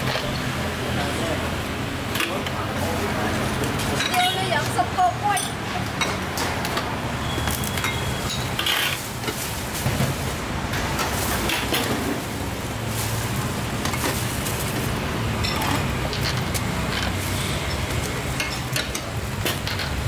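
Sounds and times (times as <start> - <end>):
low background rush: 0.0 - 20.0.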